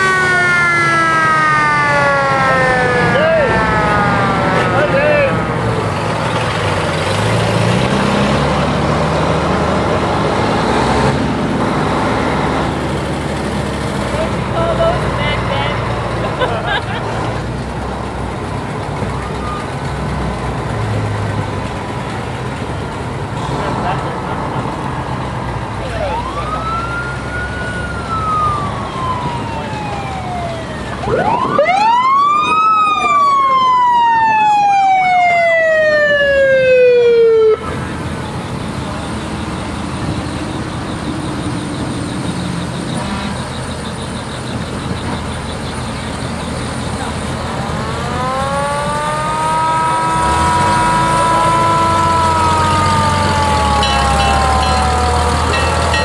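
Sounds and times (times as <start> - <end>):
fire truck sirens wailing: 0.0 - 56.0
truck engines rumbling: 0.0 - 56.0.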